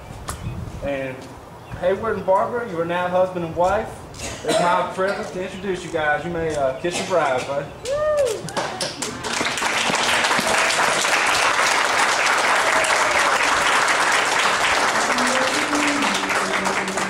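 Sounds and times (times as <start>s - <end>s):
crowd applauding: 8.2s - 17.0s
voices calling out: 14.7s - 17.0s.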